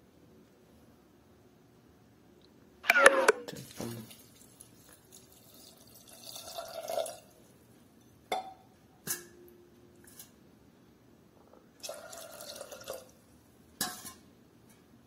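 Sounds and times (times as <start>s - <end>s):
water pouring into pot: 4.0s - 7.5s, 11.8s - 13.2s.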